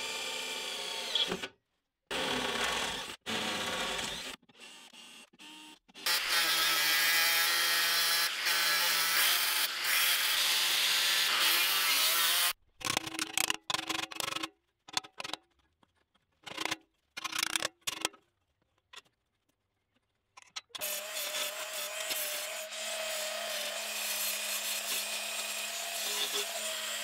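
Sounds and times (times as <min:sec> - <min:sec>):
angle grinder cutting steel: 0:06.0 - 0:12.6, 0:20.8 - 0:27.0.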